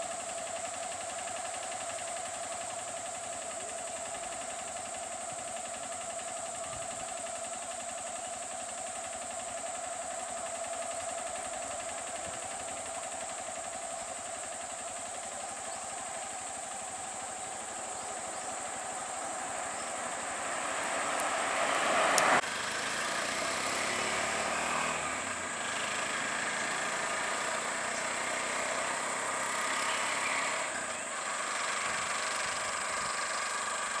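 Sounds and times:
auto-rickshaw engine moving: 0:00.0 - 0:34.0
engine idling: 0:00.0 - 0:34.0
car engine moving: 0:08.5 - 0:34.0.

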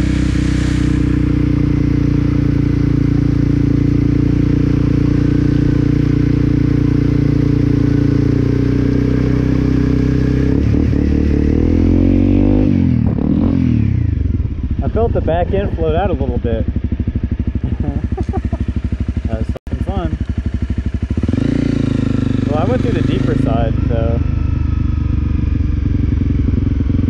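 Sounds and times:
water spraying off wheel: 0:00.0 - 0:02.6
motorcycle engine running: 0:00.0 - 0:27.0.

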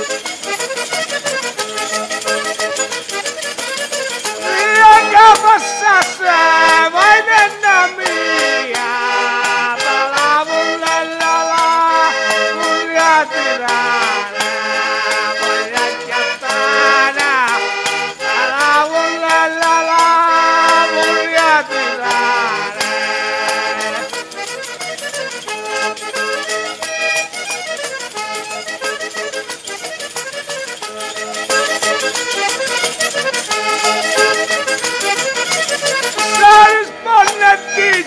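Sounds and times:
button accordion folk tune: 0:00.0 - 0:38.0
man singing: 0:04.4 - 0:14.4, 0:15.4 - 0:17.7, 0:18.4 - 0:24.1, 0:36.2 - 0:38.0.

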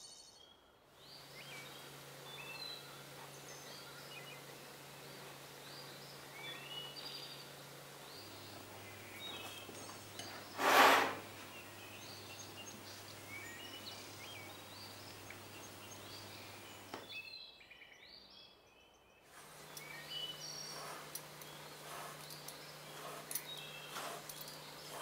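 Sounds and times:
small birds chirping: 0:00.0 - 0:25.0
steady low hum: 0:19.3 - 0:25.0.

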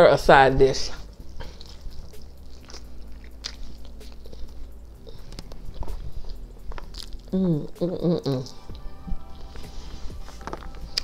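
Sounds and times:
person chewing meat: 0:01.0 - 0:11.0.

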